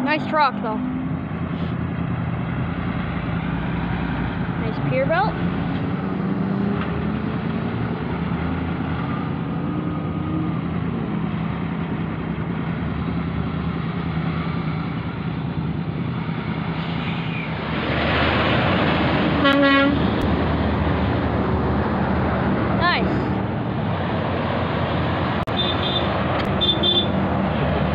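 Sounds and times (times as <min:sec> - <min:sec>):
rising and falling engine tones: 0:00.0 - 0:19.4
traffic and engine noise: 0:00.0 - 0:27.9
vehicle rushing by: 0:00.0 - 0:27.9.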